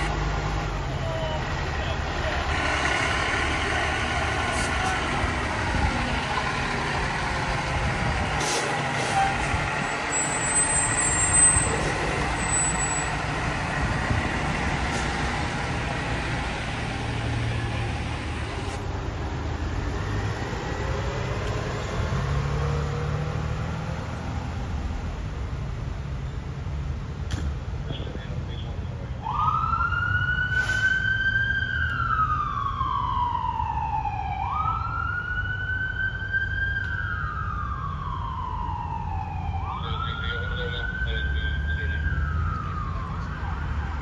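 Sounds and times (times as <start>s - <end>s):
diesel engine running: 0.0s - 21.2s.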